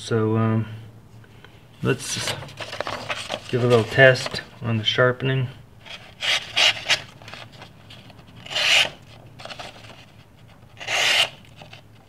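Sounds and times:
knife slicing through paper: 8.4 - 10.0, 10.8 - 11.8.

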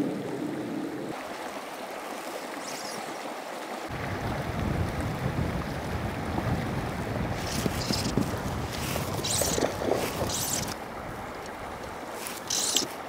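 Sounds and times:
wind over water: 0.0 - 1.4, 3.9 - 13.0
small waves lapping: 0.0 - 13.0
wind rumbling on microphone: 3.9 - 13.0.

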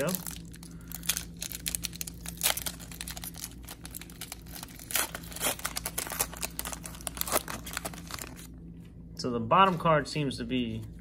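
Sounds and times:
plastic wrapper tearing and crinkling: 0.0 - 8.5.

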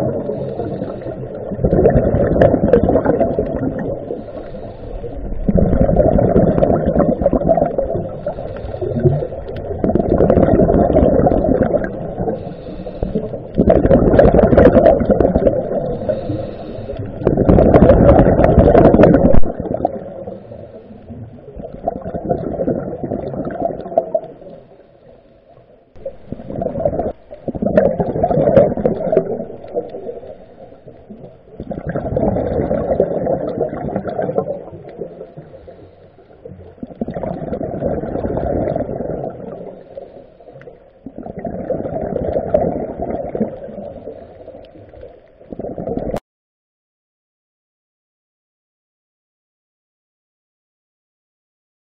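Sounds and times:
diver breathing through regulator: 0.2 - 1.4, 4.0 - 5.3, 12.0 - 13.6, 15.7 - 17.3.

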